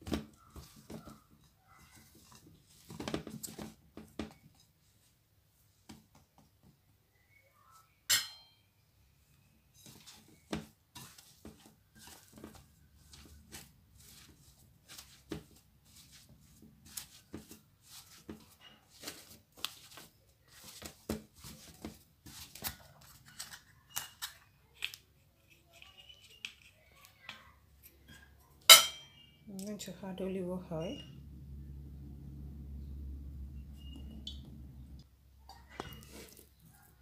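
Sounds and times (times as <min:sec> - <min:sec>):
hands kneading dough: 0:00.0 - 0:08.0, 0:09.6 - 0:23.9, 0:35.6 - 0:37.0.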